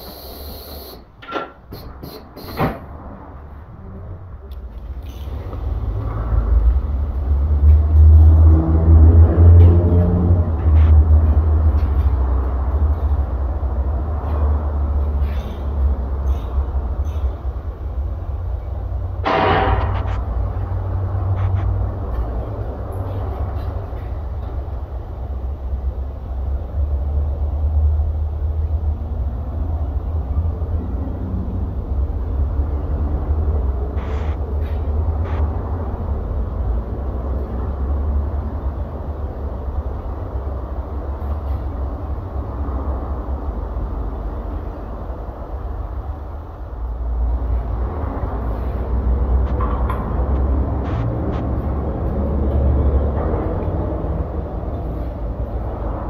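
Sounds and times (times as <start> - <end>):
noisy hiss: 0.0 - 7.5, 30.8 - 53.1
low workshop rumble: 0.0 - 56.0
sharp clicks and knocks: 19.2 - 20.5, 49.4 - 53.8.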